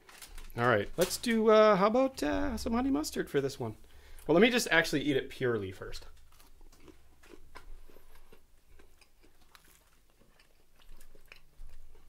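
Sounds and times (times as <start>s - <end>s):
chewing food: 5.9s - 12.0s.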